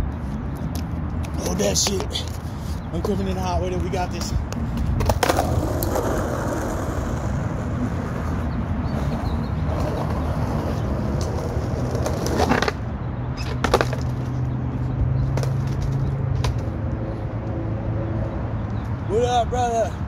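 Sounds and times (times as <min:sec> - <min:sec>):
skateboard wheels rolling on asphalt: 0:00.0 - 0:19.9
skateboard clacking on ground: 0:00.6 - 0:08.3, 0:09.0 - 0:12.8, 0:13.4 - 0:14.5, 0:15.3 - 0:16.7.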